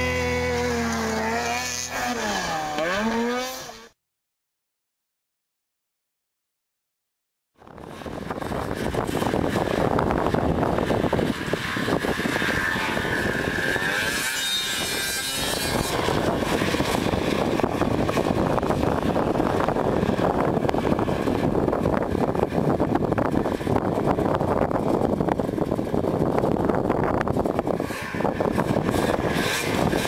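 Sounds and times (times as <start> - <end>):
snowmobile engine droning: 0.0 - 4.0, 7.6 - 30.0.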